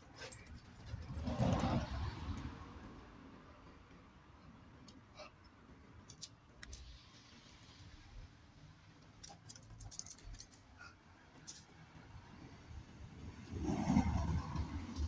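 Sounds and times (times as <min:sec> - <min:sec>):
light metallic jingling: 0:00.0 - 0:01.4, 0:09.2 - 0:10.8
dog claws clicking on concrete: 0:09.2 - 0:10.8.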